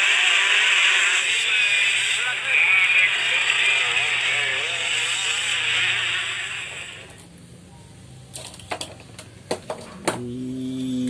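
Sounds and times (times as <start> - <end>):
steady low hum: 0.0 - 8.4, 9.2 - 11.0
plastic toys clicking and knocking: 8.3 - 10.2.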